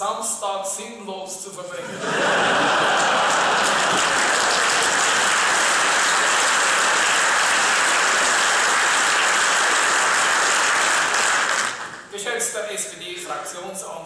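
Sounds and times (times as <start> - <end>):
large audience applauding: 2.1 - 12.1.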